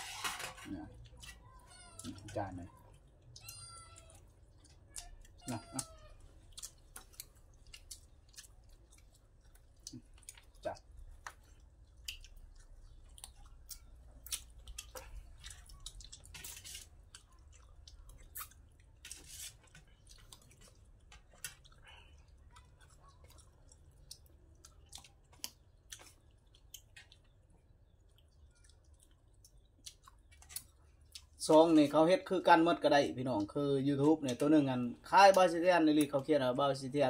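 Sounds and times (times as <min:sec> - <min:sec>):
people chewing and lip smacking: 0:00.1 - 0:32.0.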